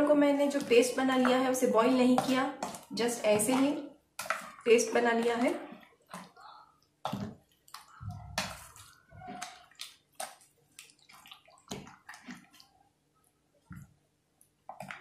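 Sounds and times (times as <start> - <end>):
wet squelches of stirred marinade: 0.0 - 15.0.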